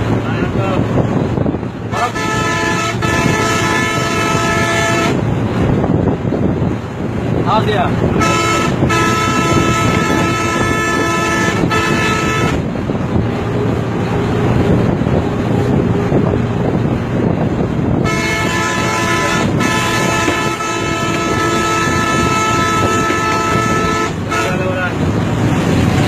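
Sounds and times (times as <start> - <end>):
bus engine and road rumble: 0.0 - 26.0
bus horn blasts: 1.9 - 5.4, 8.1 - 12.8, 17.8 - 25.0.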